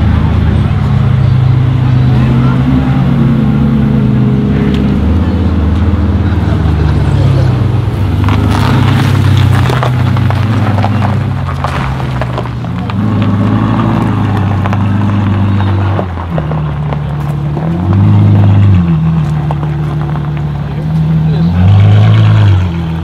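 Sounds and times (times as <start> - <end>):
car engine idling: 0.0 - 23.0
engine revving: 0.0 - 23.0.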